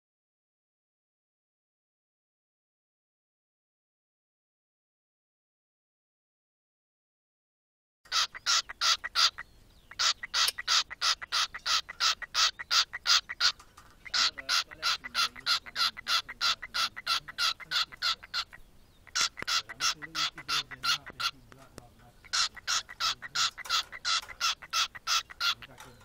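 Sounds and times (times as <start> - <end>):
cockatiel chirping: 8.1 - 26.0.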